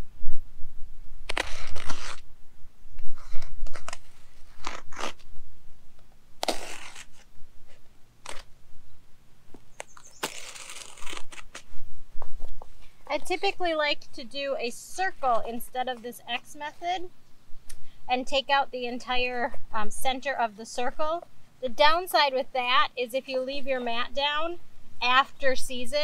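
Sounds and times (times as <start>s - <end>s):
weed mat rasping as it is torn: 1.2s - 2.2s, 3.2s - 5.3s, 6.4s - 8.5s, 9.7s - 11.8s.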